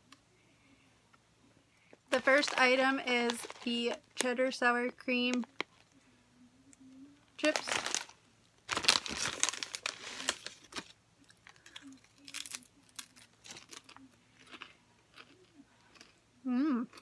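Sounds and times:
chip bag crinkling: 0:02.1 - 0:04.3, 0:07.4 - 0:15.4
chips being chewed: 0:08.7 - 0:16.2.

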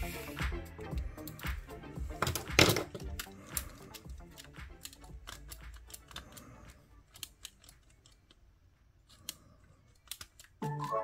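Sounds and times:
small clicks and taps of tools: 0:00.8 - 0:08.4.

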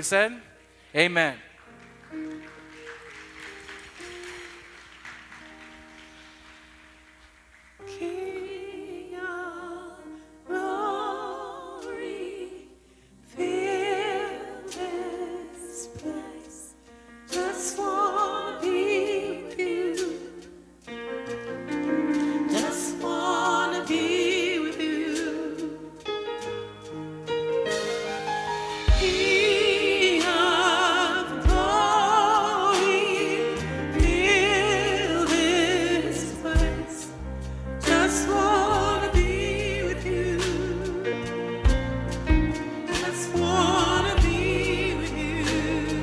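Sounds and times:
woman singing gospel song: 0:07.8 - 0:20.5, 0:22.2 - 0:25.9, 0:28.9 - 0:37.2, 0:37.8 - 0:41.3, 0:42.9 - 0:46.0
electric keyboard chords: 0:17.4 - 0:46.0.

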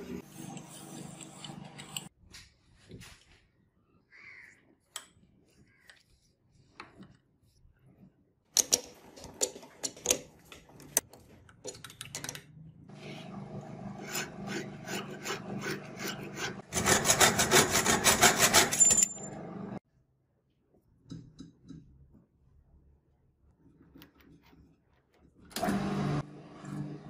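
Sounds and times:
file rasping on steel rod: 0:13.9 - 0:18.8.

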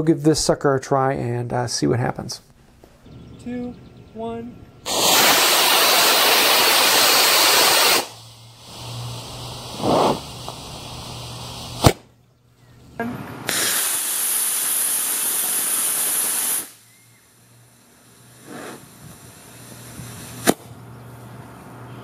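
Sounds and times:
rocket motor hissing: 0:04.8 - 0:12.1, 0:13.4 - 0:21.8
sharp pop of ejection charge: 0:11.8 - 0:12.1, 0:20.4 - 0:20.7.

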